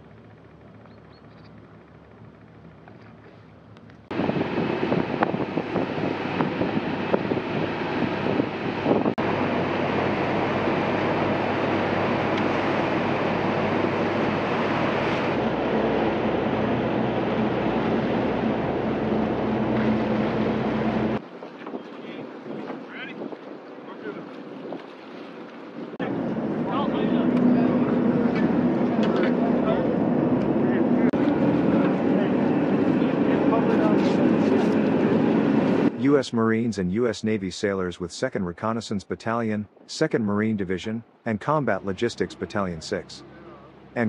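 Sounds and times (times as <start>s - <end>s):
boat engine droning: 0.0s - 44.0s
faint outdoor ambience: 0.0s - 44.0s
wind on microphone: 4.1s - 36.0s
rushing water: 9.2s - 29.7s.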